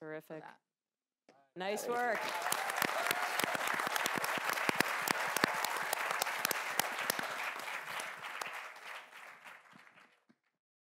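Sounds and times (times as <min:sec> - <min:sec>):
audience applauding: 0:01.7 - 0:10.3.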